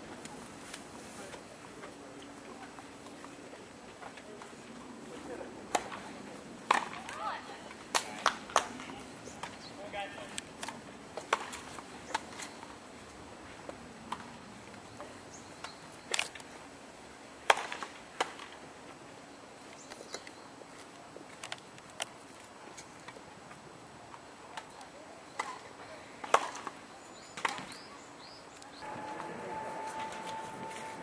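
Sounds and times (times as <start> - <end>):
rackets striking tennis ball: 6.6 - 7.2.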